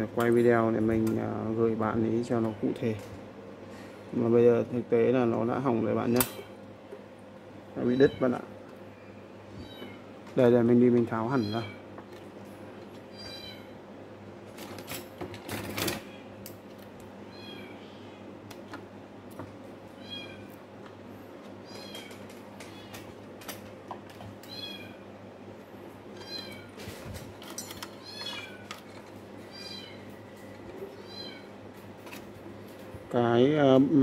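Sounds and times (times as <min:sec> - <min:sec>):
cat meowing: 0:09.6 - 0:10.0, 0:17.3 - 0:17.8, 0:24.5 - 0:25.0, 0:26.2 - 0:26.7, 0:31.0 - 0:31.5.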